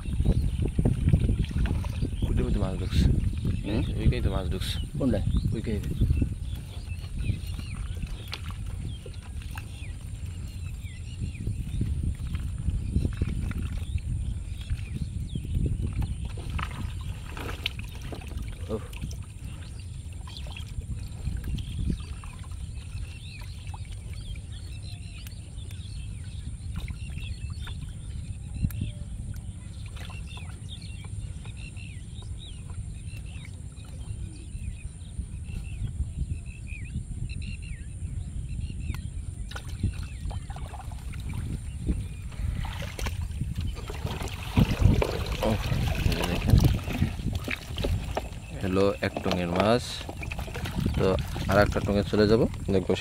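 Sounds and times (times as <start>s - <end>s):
water splashing and dripping: 0.0s - 4.4s, 5.4s - 10.6s, 11.6s - 31.2s, 39.4s - 53.0s
fish flapping in water: 15.8s - 24.4s, 39.5s - 52.7s.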